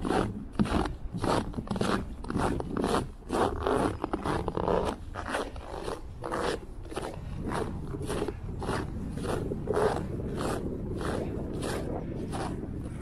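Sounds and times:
footsteps crunching through snow: 0:00.0 - 0:13.0.

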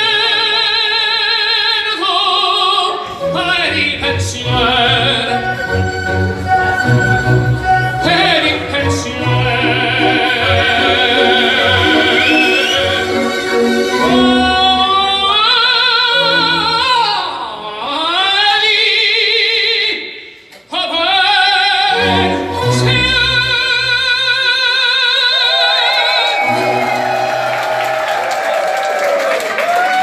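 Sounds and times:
operatic voice singing: 0:00.0 - 0:27.4
low accompaniment: 0:03.0 - 0:17.4.

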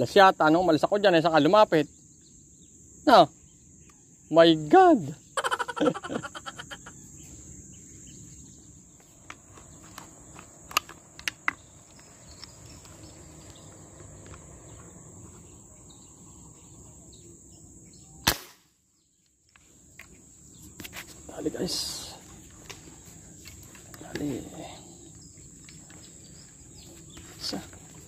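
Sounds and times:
airgun shot: 0:18.2 - 0:18.8.

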